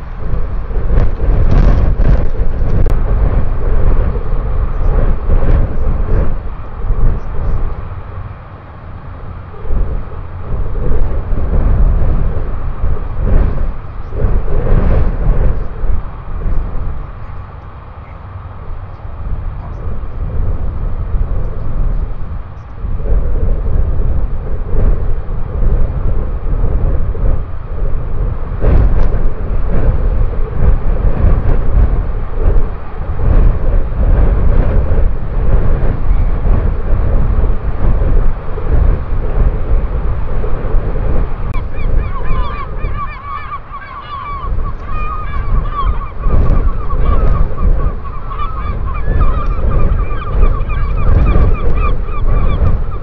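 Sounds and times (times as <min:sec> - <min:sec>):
wind buffeting microphone: 0:00.0 - 0:53.0
bird honking calls: 0:41.6 - 0:53.0.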